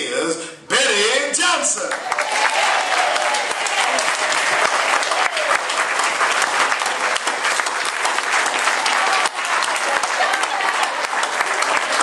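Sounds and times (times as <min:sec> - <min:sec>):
crowd clapping: 0:01.9 - 0:12.0.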